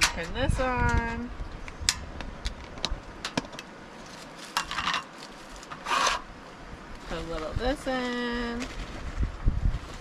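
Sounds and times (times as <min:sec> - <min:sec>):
plastic bag rustling: 0:04.0 - 0:06.2, 0:07.0 - 0:10.0.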